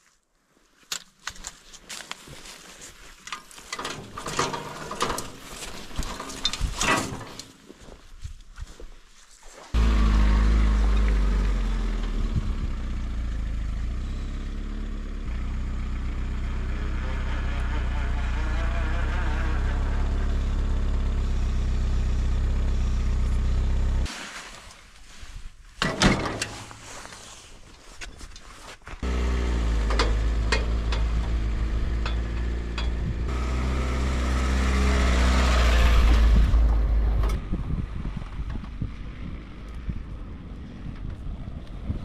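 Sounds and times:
sharp clanks and knocks: 3.3s - 7.6s, 25.8s - 26.8s, 29.8s - 33.2s
utility vehicle engine running: 9.8s - 24.1s, 29.0s - 41.5s.

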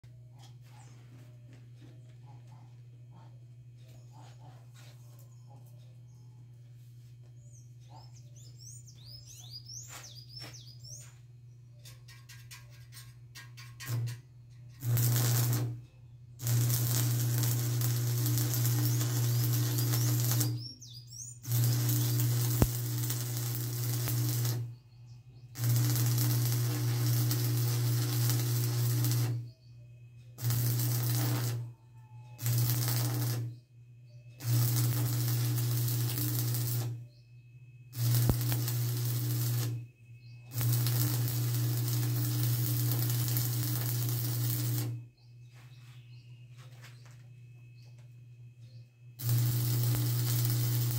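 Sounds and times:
birds chirping: 0.2s - 12.4s, 15.9s - 32.4s, 33.0s - 50.9s
electric arc welding hiss: 14.8s - 15.8s, 16.4s - 20.7s, 21.4s - 24.7s, 25.6s - 29.5s, 30.4s - 31.6s, 32.4s - 33.5s, 34.4s - 37.0s, 38.0s - 39.8s, 40.5s - 45.0s, 49.2s - 50.9s.

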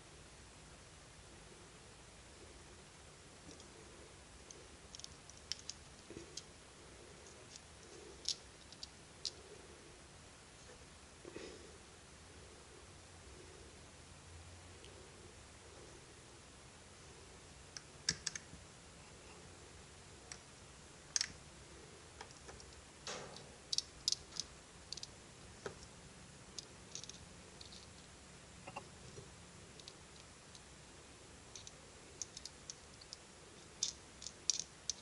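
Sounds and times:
small metal parts clicking: 4.5s - 6.5s, 7.2s - 9.4s, 21.1s - 21.4s, 22.2s - 25.9s, 26.6s - 28.1s, 29.7s - 30.7s, 31.5s - 35.0s.

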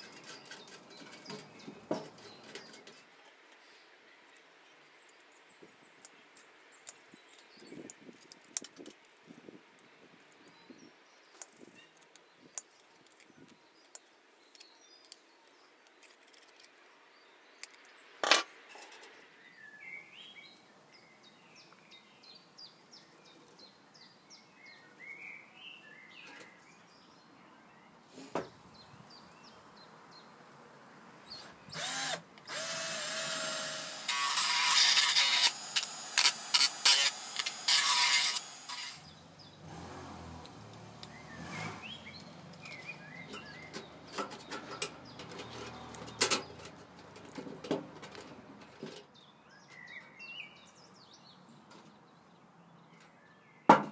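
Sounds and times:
birds chirping faintly: 0.0s - 53.7s
electric drill drilling into tin: 31.8s - 39.1s.

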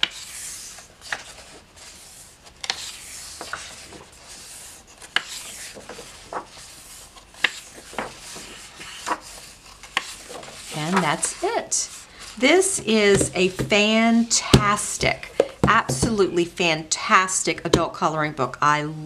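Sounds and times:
hands sliding over paper: 0.0s - 14.0s
pages rustling: 0.0s - 16.1s.

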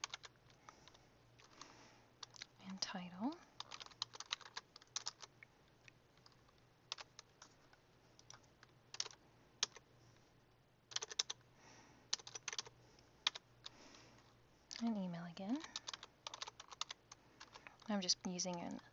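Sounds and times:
typing on computer keyboard: 0.0s - 2.5s, 3.6s - 5.3s, 6.2s - 9.8s, 10.9s - 11.4s, 12.1s - 13.8s, 15.6s - 18.8s.

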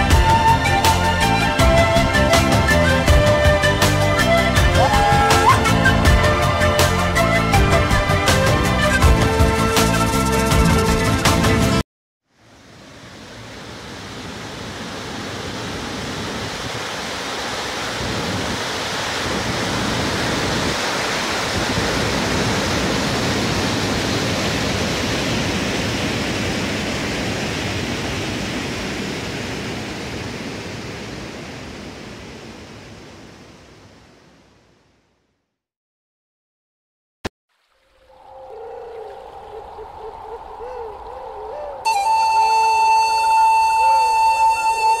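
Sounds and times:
waterfall roaring: 2.2s - 9.0s, 12.4s - 34.0s, 37.6s - 45.0s.

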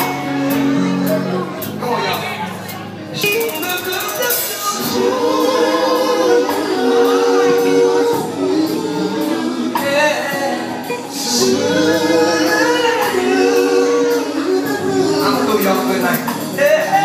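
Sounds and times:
backing music: 0.0s - 17.0s
man singing into microphone: 7.5s - 17.0s.

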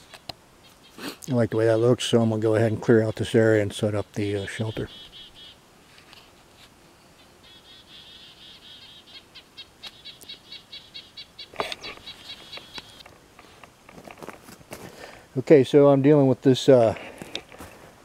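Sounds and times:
songbird chirping: 0.0s - 6.2s, 6.8s - 13.7s
rustling in dry leaves: 11.4s - 15.2s.

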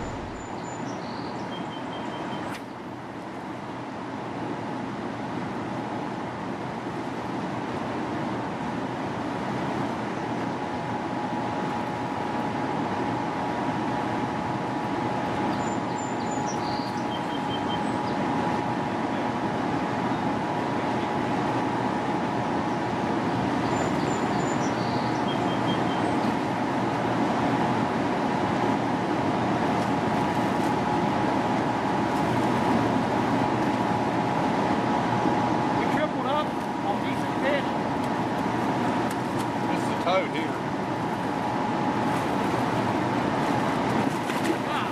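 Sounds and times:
river current rushing: 0.0s - 0.6s, 26.3s - 44.9s
faint steady hum: 0.0s - 44.9s.

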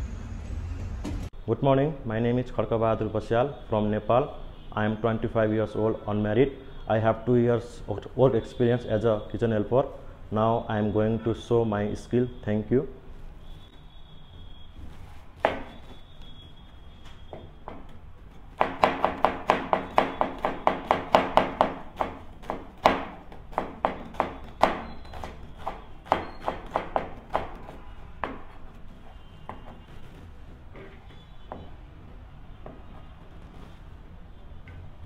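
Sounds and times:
knife chopping onion on cutting board: 18.6s - 28.7s.

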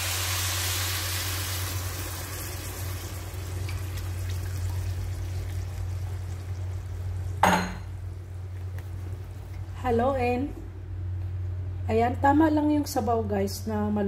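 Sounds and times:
broth pouring and splashing: 0.0s - 7.4s.

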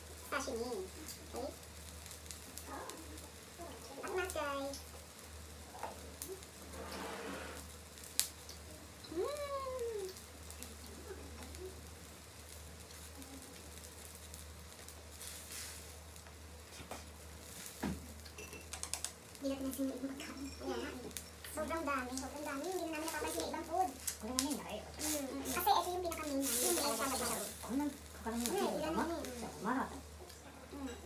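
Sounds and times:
person humming: 9.1s - 10.2s
chopsticks clicking against dishes: 18.2s - 19.2s.

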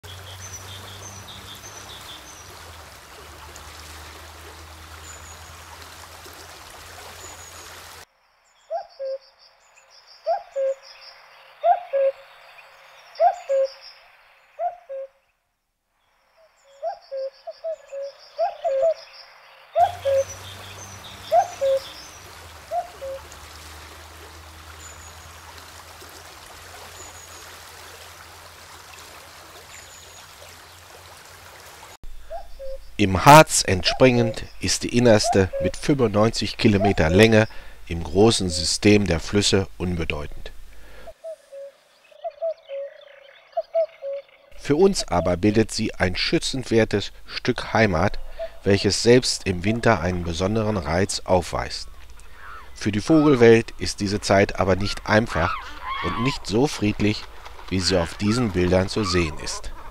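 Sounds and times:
rushing river water: 0.0s - 8.1s, 19.8s - 32.1s, 33.0s - 41.5s, 44.5s - 59.9s
small birds chirping: 0.0s - 15.1s, 16.0s - 31.3s, 32.1s - 39.0s, 47.7s - 59.9s.

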